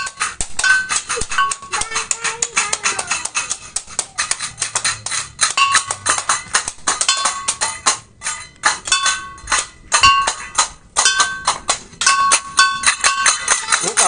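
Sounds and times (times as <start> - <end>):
clattering cymbal strikes: 4.3 - 14.0.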